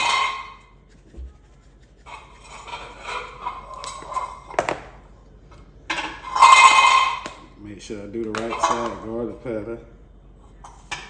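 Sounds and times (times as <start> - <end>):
seasoning shaker rattling: 0.0 - 4.2.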